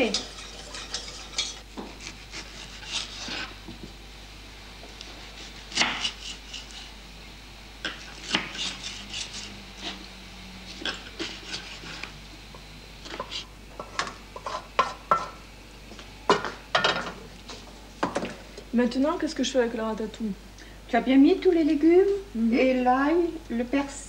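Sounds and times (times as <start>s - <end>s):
spoon stirring metal saucepan: 0.0s - 1.6s.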